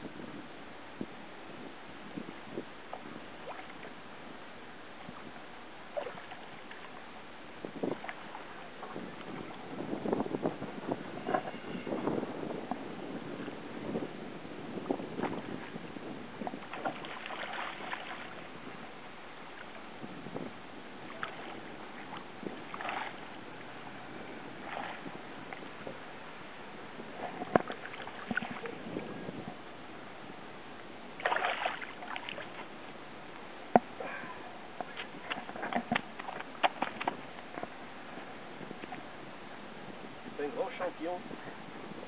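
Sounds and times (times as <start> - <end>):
fish splashing in shallow water: 2.8 - 4.3, 5.1 - 13.6, 14.8 - 19.9, 20.5 - 29.3, 31.0 - 39.4.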